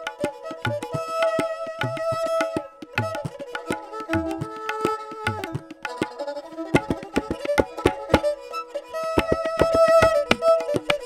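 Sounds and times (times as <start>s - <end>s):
bowed sarangi melody: 0.0s - 11.0s
tabla strokes: 0.0s - 11.0s
flute melody: 7.2s - 11.0s.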